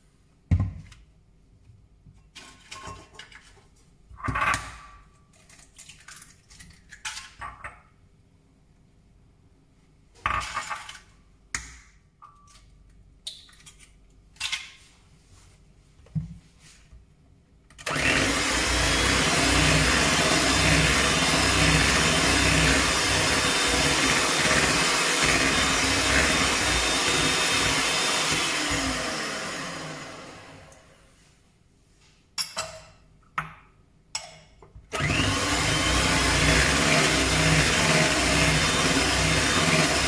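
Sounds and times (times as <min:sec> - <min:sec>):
electric hand mixer running: 0:17.9 - 0:30.9, 0:35.0 - 0:40.0.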